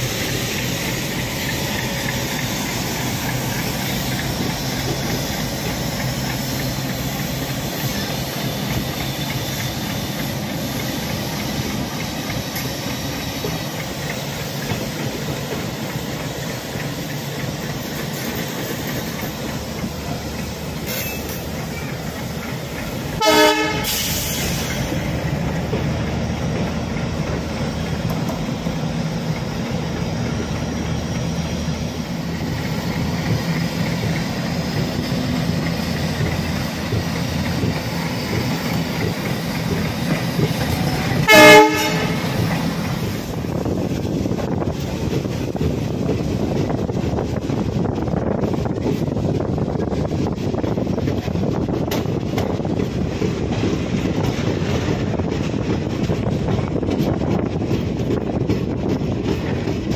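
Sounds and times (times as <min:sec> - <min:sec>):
diesel locomotive engine: 0:00.0 - 0:59.9
train wheels rumbling on rail: 0:00.0 - 0:59.9
train horn blast: 0:23.2 - 0:24.3, 0:41.0 - 0:42.4.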